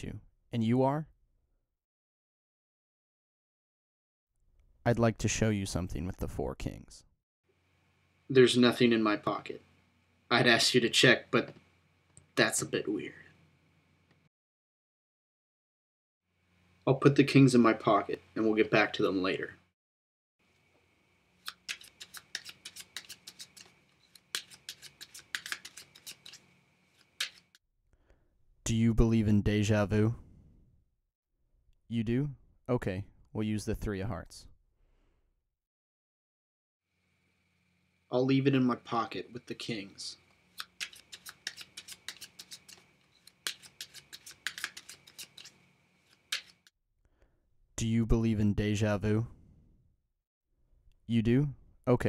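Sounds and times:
playing cards snapping: 0:21.4 - 0:27.6, 0:40.6 - 0:46.7.

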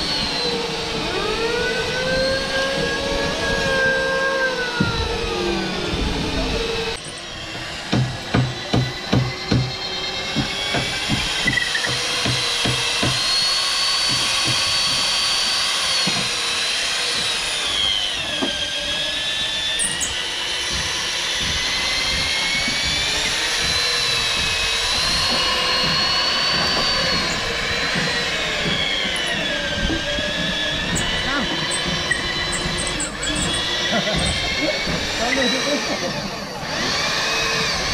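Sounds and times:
electric drill boring into wood: 0:00.0 - 0:37.9
sharp knocks: 0:07.9 - 0:13.4, 0:14.0 - 0:16.4, 0:19.8 - 0:35.2.

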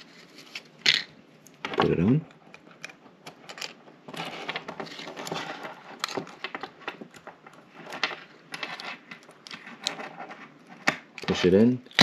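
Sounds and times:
small clicks and scrapes: 0:01.4 - 0:12.0.

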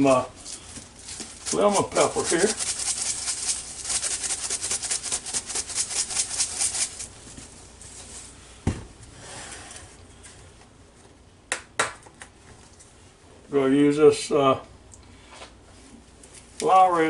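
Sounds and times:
shaker jar rattling: 0:00.0 - 0:07.2.

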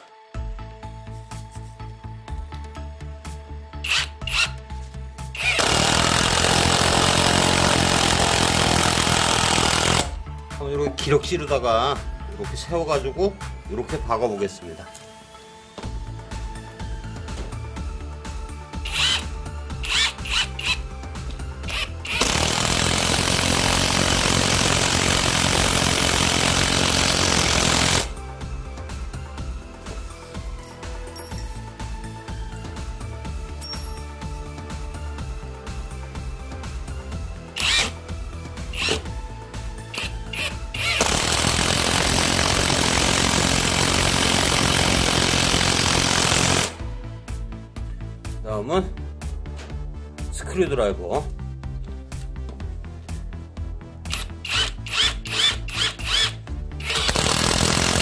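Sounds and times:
background music: 0:00.0 - 0:58.0
cordless driver driving screw: 0:03.8 - 0:04.6, 0:05.4 - 0:10.1, 0:18.8 - 0:20.8, 0:21.7 - 0:28.1, 0:37.6 - 0:38.0, 0:38.7 - 0:39.1, 0:39.9 - 0:46.7, 0:54.1 - 0:58.0
impact wrench rattling: 0:03.8 - 0:04.6, 0:05.4 - 0:10.2, 0:18.8 - 0:19.2, 0:19.8 - 0:20.8, 0:21.7 - 0:28.1, 0:38.7 - 0:39.0, 0:39.9 - 0:46.7, 0:54.1 - 0:58.0.

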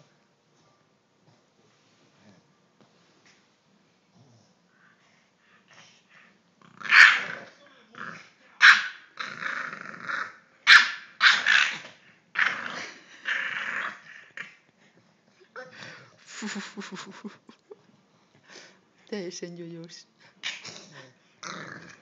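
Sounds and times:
puppy growling and barking: 0:06.6 - 0:14.6, 0:21.4 - 0:22.0.

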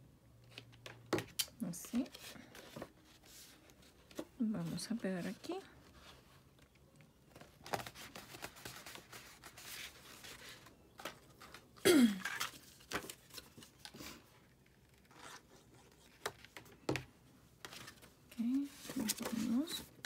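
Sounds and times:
cardstock paper rustling: 0:17.7 - 0:20.0.

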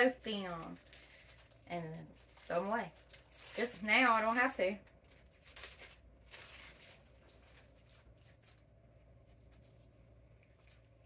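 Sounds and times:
packaging rustling: 0:00.0 - 0:08.8.

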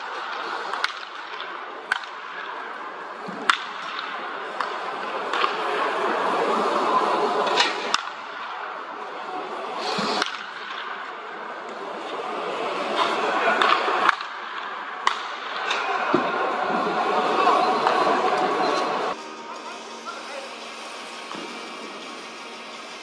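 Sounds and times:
background murmur: 0:00.0 - 0:23.0
baseball bats cracking balls: 0:13.6 - 0:15.9.

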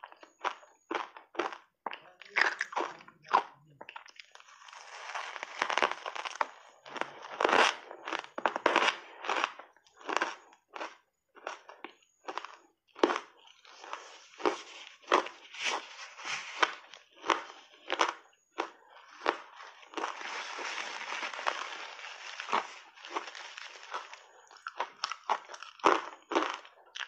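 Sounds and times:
ice cubes crunching: 0:02.2 - 0:27.0
tissue rubbing over mouth: 0:14.6 - 0:16.7.

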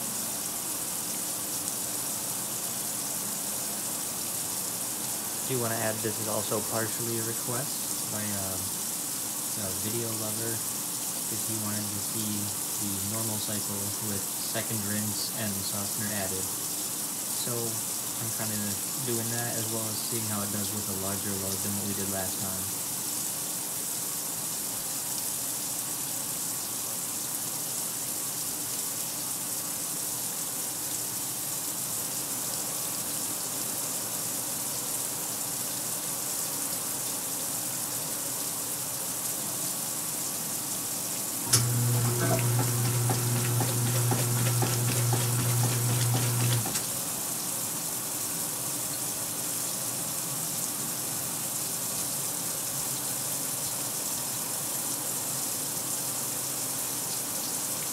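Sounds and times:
motor hum with rapid ticking: 0:41.5 - 0:46.9
washer click: 0:41.5 - 0:46.9
water running into washer tub: 0:41.5 - 0:47.1.

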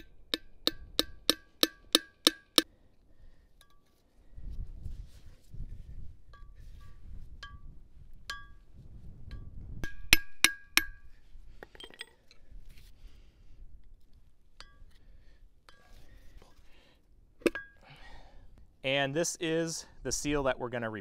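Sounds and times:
hammer striking metal punch: 0:00.0 - 0:02.6, 0:09.8 - 0:11.0.

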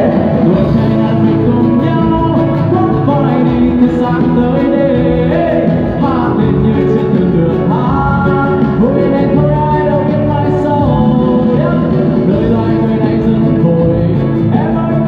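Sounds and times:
guitars: 0:00.0 - 0:15.0
keyboard: 0:00.0 - 0:15.0
person singing: 0:00.0 - 0:15.0.

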